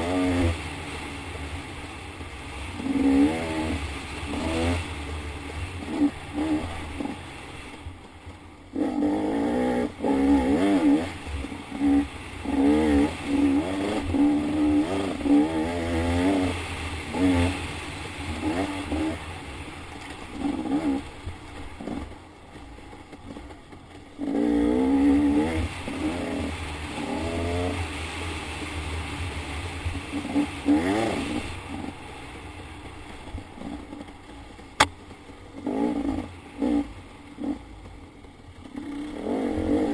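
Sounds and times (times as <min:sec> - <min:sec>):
dirt bike engine revving: 0:00.0 - 0:01.0, 0:02.6 - 0:07.3, 0:08.7 - 0:19.5, 0:20.3 - 0:21.1, 0:24.2 - 0:29.3, 0:30.0 - 0:32.0, 0:35.6 - 0:37.7, 0:38.7 - 0:39.9.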